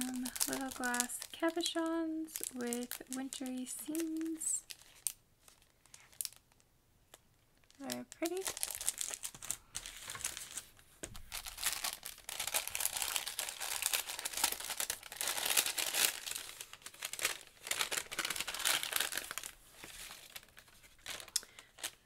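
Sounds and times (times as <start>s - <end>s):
cellophane and paper crinkling: 0.0s - 22.0s
paper bag opened: 8.2s - 22.0s.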